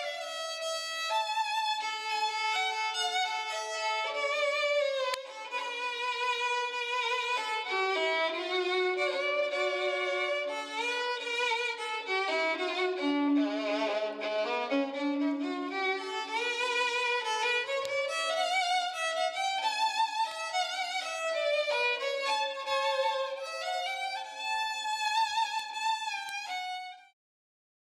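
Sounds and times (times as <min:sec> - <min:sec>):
solo violin melody: 0:00.0 - 0:27.2.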